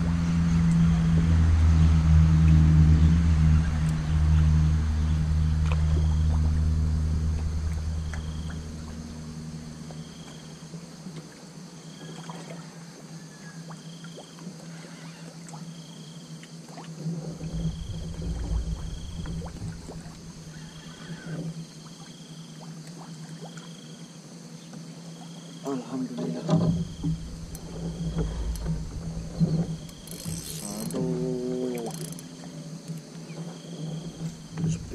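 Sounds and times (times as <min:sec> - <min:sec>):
low rumbling: 0:00.0 - 0:11.3, 0:17.0 - 0:21.6, 0:26.4 - 0:34.9
boat engine droning: 0:00.0 - 0:15.4, 0:16.9 - 0:22.3, 0:25.6 - 0:34.9
faint steady hum: 0:00.0 - 0:34.9.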